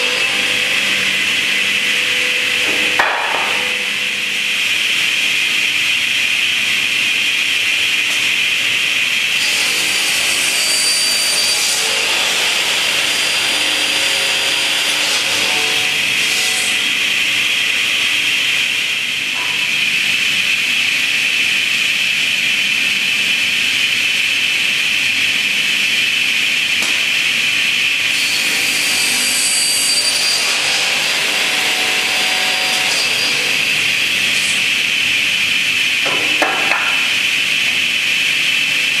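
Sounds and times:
saw cutting wooden board: 0.0 - 4.4, 9.4 - 18.8, 28.0 - 35.1
saw whining: 9.4 - 18.3, 28.0 - 35.4.

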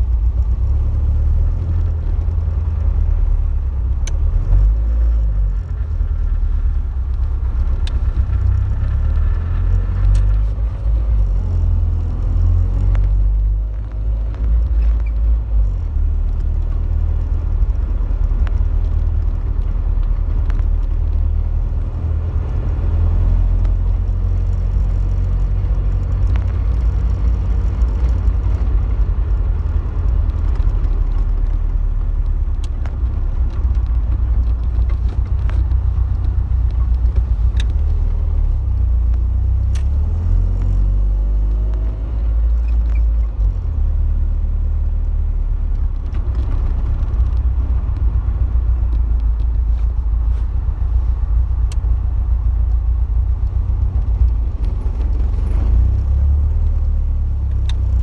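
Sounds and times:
car engine and road rumble: 0.0 - 58.0
small clicks: 7.0 - 44.0.

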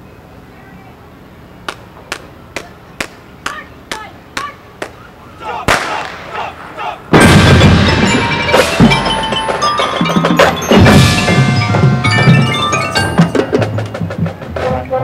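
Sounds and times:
marching band brass and percussion: 5.4 - 15.0
sharp drum hit: 7.1 - 14.1.

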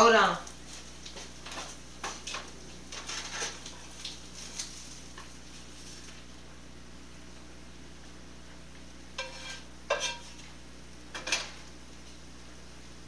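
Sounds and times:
dishes and utensils clinking: 9.2 - 10.3.

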